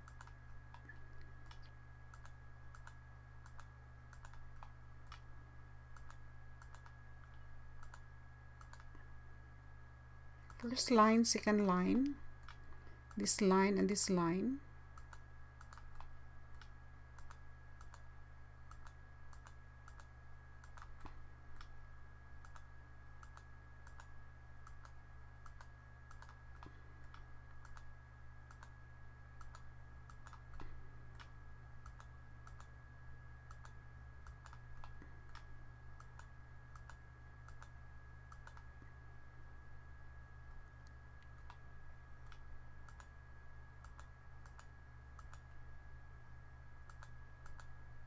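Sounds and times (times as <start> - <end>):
computer mouse buttons clicking: 0.0 - 5.3, 5.9 - 8.0, 8.6 - 9.0, 15.0 - 21.7, 22.4 - 27.9, 28.5 - 28.7, 29.4 - 32.7, 33.5 - 37.7, 38.3 - 38.7, 40.5 - 41.6, 42.2 - 43.1, 43.8 - 45.6, 46.8 - 47.7
faint electrical hum: 0.0 - 48.0
thin steady whine: 0.0 - 48.0.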